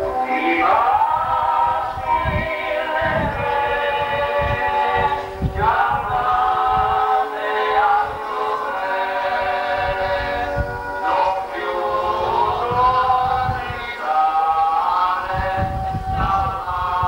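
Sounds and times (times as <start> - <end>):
choir singing held notes: 0.0 - 17.0.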